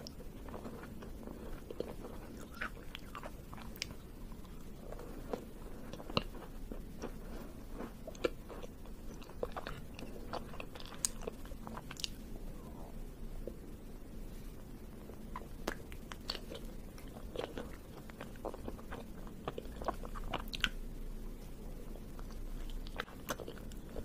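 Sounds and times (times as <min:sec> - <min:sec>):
chewing with wet mouth sounds: 0:00.0 - 0:12.2, 0:15.1 - 0:20.8, 0:22.0 - 0:24.0.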